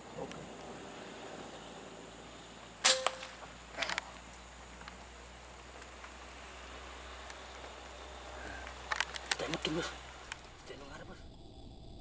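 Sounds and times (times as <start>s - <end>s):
air rifle shot: 2.8s - 3.4s.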